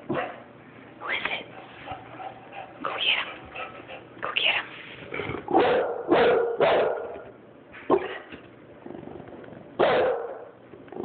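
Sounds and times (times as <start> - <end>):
bulldog barking: 0.1 - 0.5, 5.5 - 7.3, 9.8 - 10.6.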